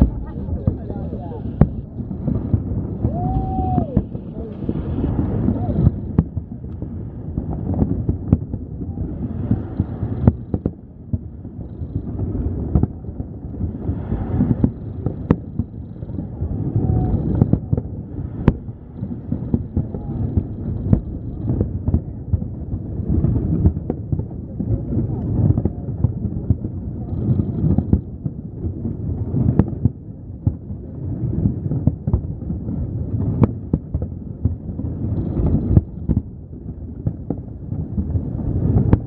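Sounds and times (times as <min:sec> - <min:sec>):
distant fireworks rumble: 0:00.0 - 0:39.0
sharp firework bangs: 0:00.0 - 0:39.0.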